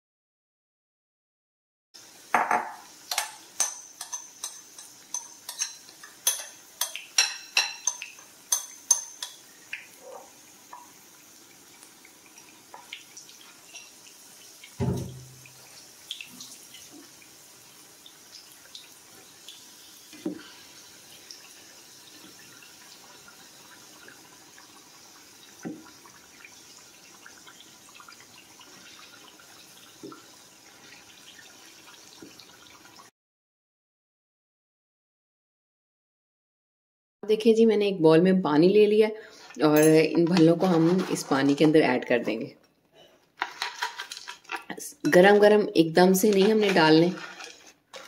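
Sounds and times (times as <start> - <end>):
hot oil sizzling: 2.0 - 33.1, 43.4 - 48.0.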